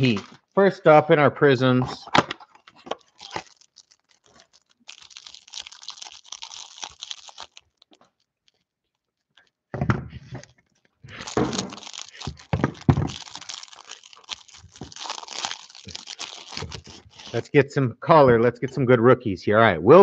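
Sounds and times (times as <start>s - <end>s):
cellophane crinkling and tearing: 2.4s - 9.6s, 10.4s - 17.5s.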